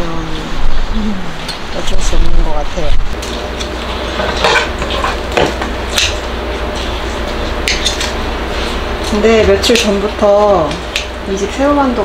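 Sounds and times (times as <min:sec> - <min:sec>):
tableware clinking: 0:04.2 - 0:05.6.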